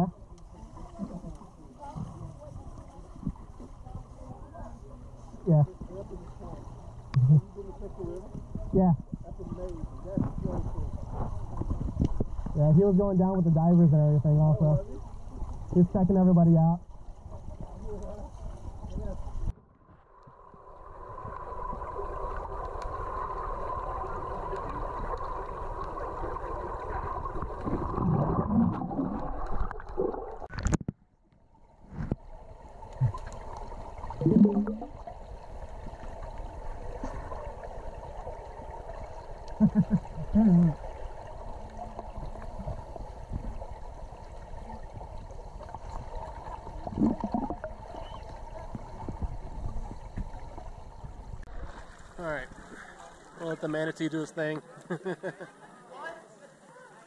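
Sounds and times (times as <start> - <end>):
muffled underwater hiss: 0.0 - 30.5, 31.7 - 55.7
air bubbles gurgling: 20.6 - 30.7, 32.8 - 35.1, 44.6 - 51.1.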